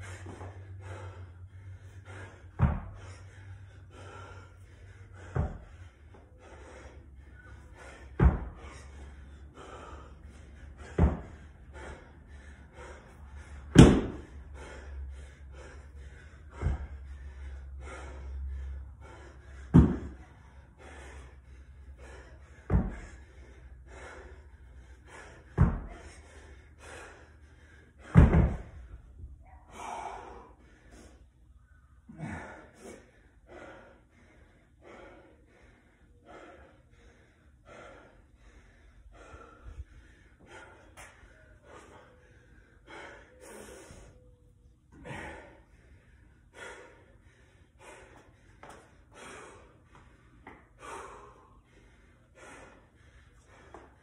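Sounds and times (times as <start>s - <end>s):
man gasping breaths: 0.0s - 54.0s
dumbbell thudding on rubber mat: 2.6s - 3.0s, 5.3s - 5.7s, 8.2s - 8.6s, 10.8s - 11.4s, 13.7s - 14.2s, 19.7s - 20.2s, 22.7s - 23.1s, 25.6s - 26.0s, 28.0s - 28.8s.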